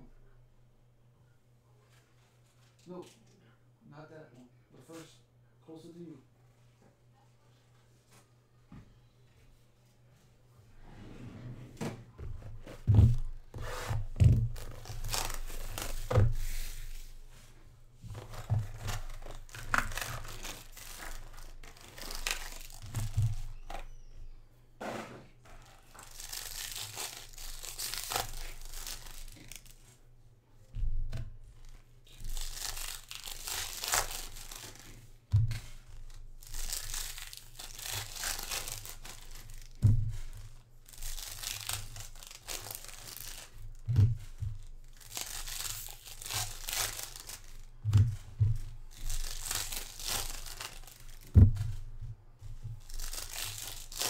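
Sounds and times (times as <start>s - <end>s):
packs thumping on table: 12.2s - 16.4s, 18.1s - 23.9s, 41.2s - 52.0s
foil packs torn and crinkled: 14.2s - 16.8s, 18.2s - 23.9s, 25.6s - 29.8s, 32.1s - 35.1s, 35.7s - 51.4s, 52.8s - 54.0s.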